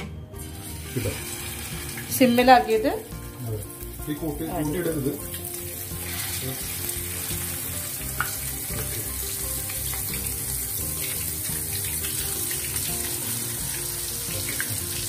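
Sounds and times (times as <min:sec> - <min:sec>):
fish fillets sizzling in oil: 0:00.4 - 0:15.0.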